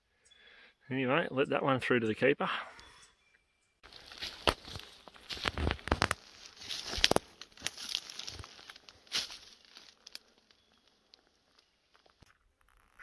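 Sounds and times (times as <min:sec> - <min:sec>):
footsteps crunching through dry leaves: 0:03.8 - 0:12.2
twigs snapping underfoot: 0:03.9 - 0:13.0.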